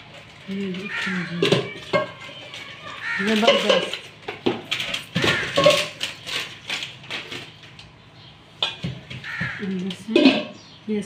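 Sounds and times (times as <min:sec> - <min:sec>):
paper packaging rustling: 0:00.0 - 0:08.1
pot and glass lid clattering: 0:03.3 - 0:04.1, 0:05.2 - 0:06.1, 0:10.1 - 0:10.6.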